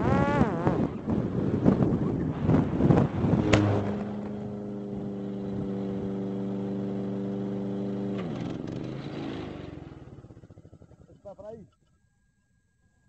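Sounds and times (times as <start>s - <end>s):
steady motor hum: 1.0s - 8.1s
drone crashing into lawn: 2.4s - 4.7s.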